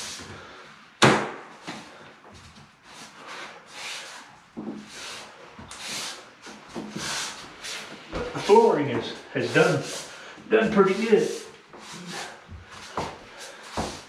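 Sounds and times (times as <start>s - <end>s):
planks scuffing: 12.5s - 14.0s.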